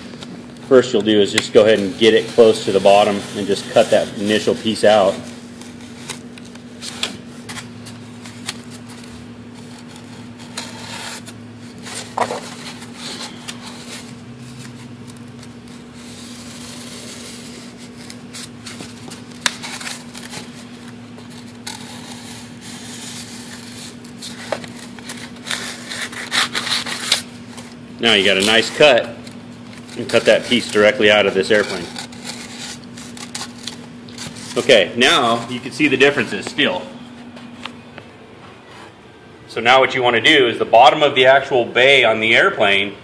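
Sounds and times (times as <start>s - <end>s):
steady low hum: 0.0s - 43.0s
knife blade scratching foam: 1.6s - 6.2s, 8.4s - 27.3s, 29.8s - 34.7s.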